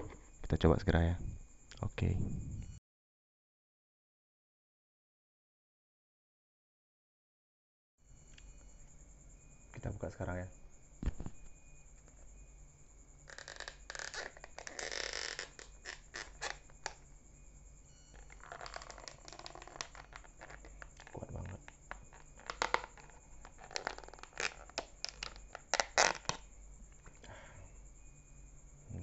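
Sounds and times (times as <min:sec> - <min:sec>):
plastic lid crinkling and clicking: 0:13.3 - 0:17.0, 0:18.1 - 0:26.4.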